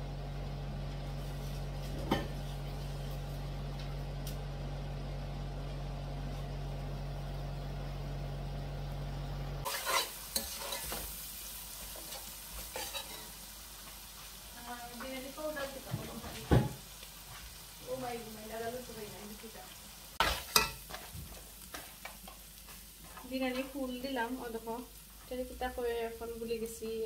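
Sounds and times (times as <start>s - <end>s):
low hum: 0.0s - 9.7s
metal spatula scraping a pot: 9.7s - 11.0s, 12.1s - 13.4s.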